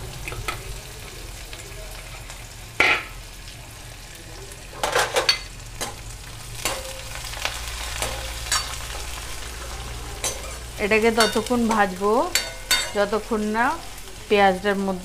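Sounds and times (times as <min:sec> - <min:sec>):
onion sizzling in oil: 0:00.0 - 0:15.0
metal ladle scraping a pan: 0:08.0 - 0:13.0.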